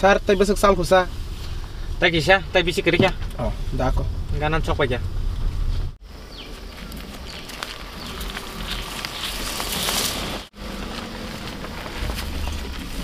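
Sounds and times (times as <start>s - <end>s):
low wind rumble: 0.0s - 13.0s.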